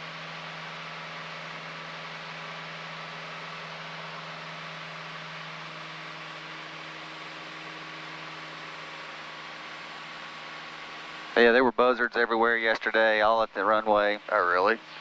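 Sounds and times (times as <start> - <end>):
propeller plane engine drone: 0.0 - 15.0.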